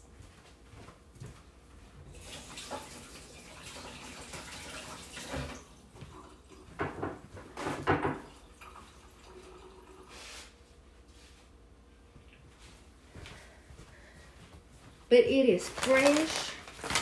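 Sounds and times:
tap running into a sink: 0:02.2 - 0:06.2, 0:06.8 - 0:08.8
short knocks and clatters: 0:06.8 - 0:08.2.

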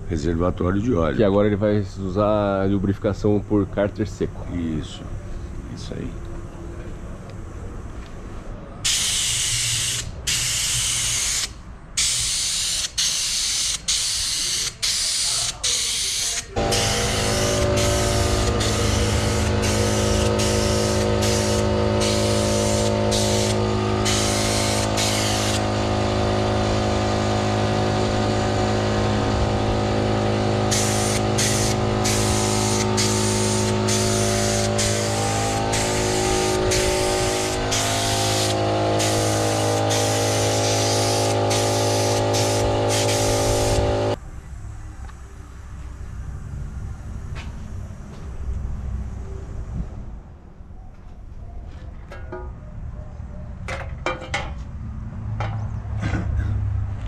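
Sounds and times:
paint spraying in hissing bursts: 0:08.8 - 0:44.2
steady motor hum: 0:16.6 - 0:44.2.

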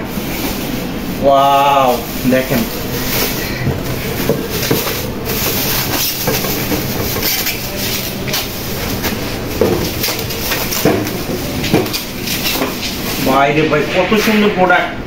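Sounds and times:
plastic film crinkling: 0:01.5 - 0:13.5.

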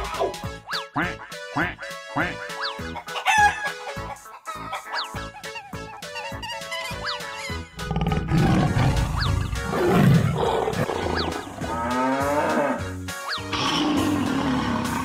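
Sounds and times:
cartoon background music: 0:00.0 - 0:15.0
lion roaring: 0:07.8 - 0:12.8, 0:13.5 - 0:15.0
cow mooing: 0:07.8 - 0:15.0.

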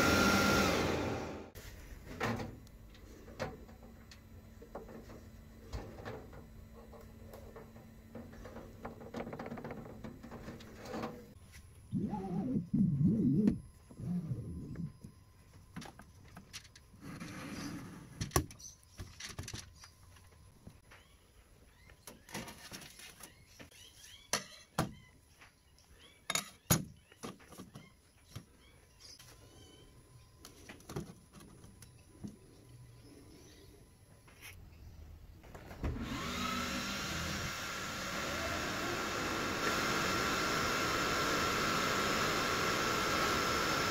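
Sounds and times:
faint steady hum: 0:01.4 - 0:22.2, 0:27.8 - 0:36.0.

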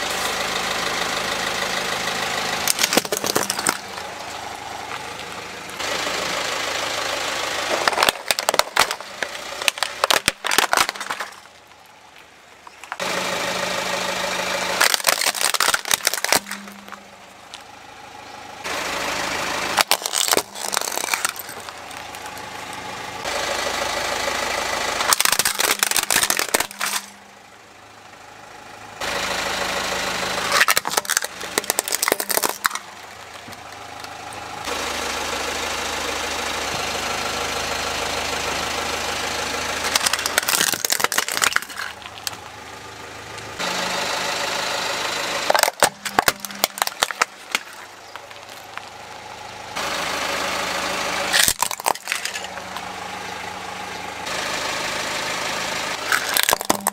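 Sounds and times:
car engine running slowly: 0:00.0 - 0:56.9
plastic toys cracking under tyre: 0:02.6 - 0:04.0, 0:07.6 - 0:13.1, 0:14.7 - 0:17.0, 0:19.8 - 0:22.8, 0:25.0 - 0:27.2, 0:30.5 - 0:34.2, 0:39.8 - 0:42.5, 0:45.5 - 0:49.0, 0:51.3 - 0:52.9, 0:56.0 - 0:56.9.

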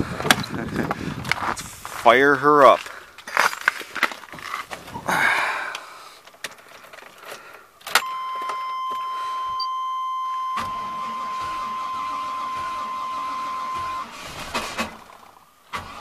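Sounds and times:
high-pitched warning tone: 0:08.0 - 0:14.1.

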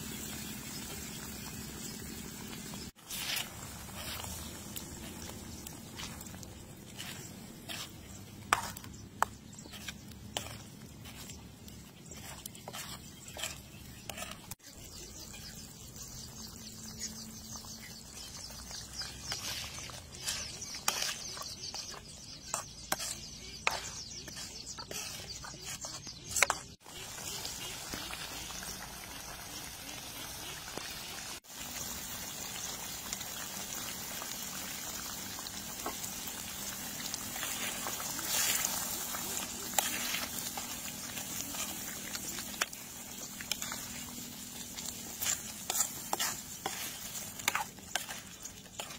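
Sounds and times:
sauce bubbling in a pan: 0:26.8 - 0:48.9.

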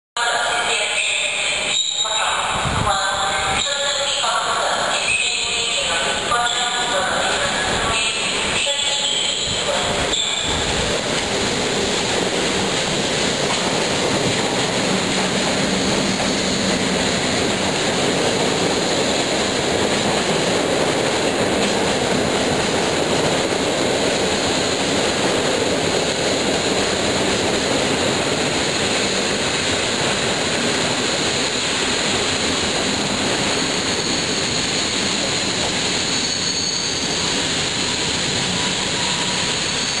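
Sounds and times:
train wheels rolling past: 0:07.2 - 0:40.0
faint high squeal: 0:33.8 - 0:34.6, 0:36.0 - 0:40.0.

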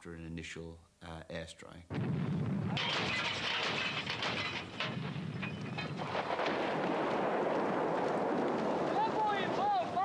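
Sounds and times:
dense steady hiss: 0:00.0 - 0:02.8
gunfire cracks: 0:02.0 - 0:09.6.

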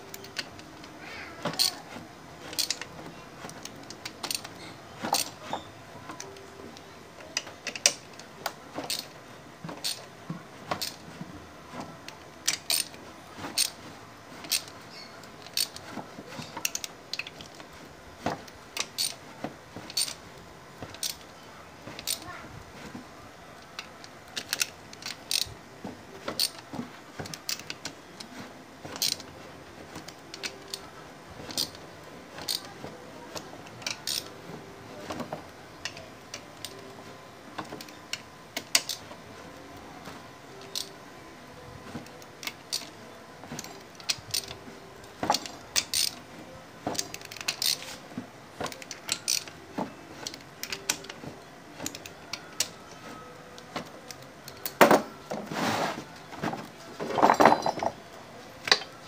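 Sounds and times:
socket wrench clicking on bolts: 0:24.4 - 0:25.5, 0:33.9 - 0:34.3, 0:45.3 - 0:46.2, 0:48.8 - 0:49.5.

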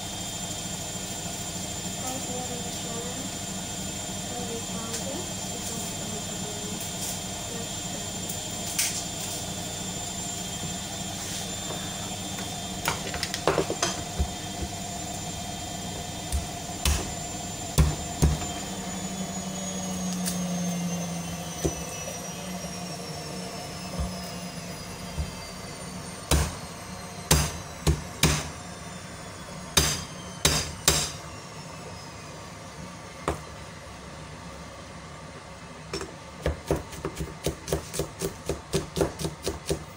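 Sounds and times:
kitchen knocks and taps: 0:12.9 - 0:14.7.

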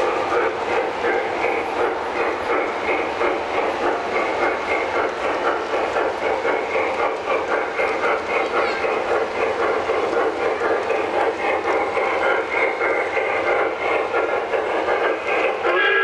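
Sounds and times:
model steam locomotive chuffing: 0:00.0 - 0:16.0
wheels rumbling on rails: 0:00.0 - 0:16.0.

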